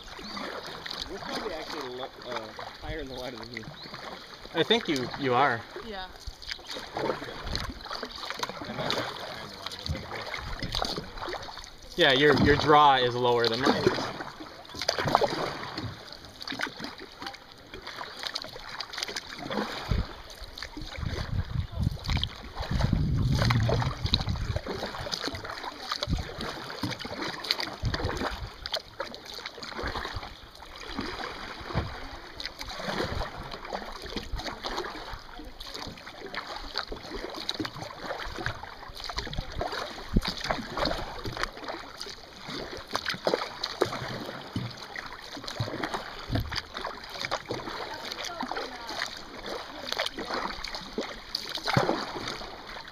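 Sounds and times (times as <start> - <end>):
kayak paddles dipping into water: 0.0 - 52.9
water dripping off paddles: 0.0 - 52.9
water splashing: 0.0 - 52.9
low rumble: 21.1 - 24.7.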